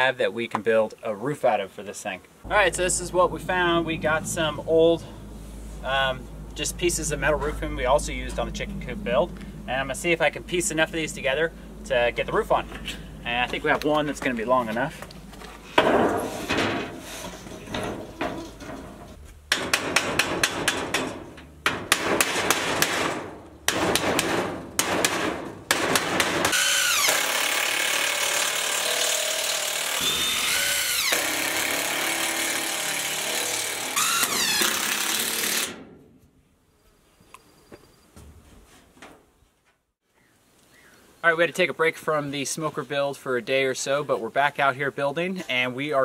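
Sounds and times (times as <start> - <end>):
hammer strikes on sheet steel: 19.5 - 26.6.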